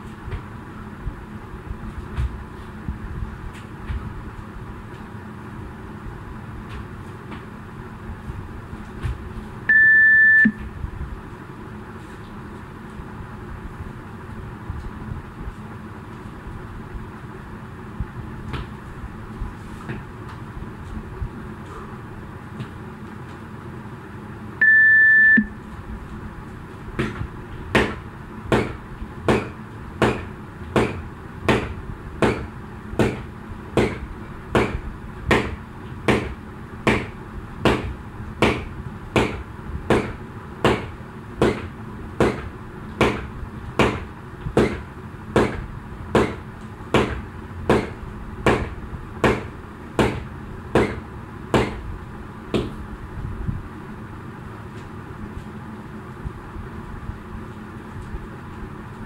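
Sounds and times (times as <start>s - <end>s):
interval timer beep: 9.7s - 10.6s, 24.6s - 25.5s.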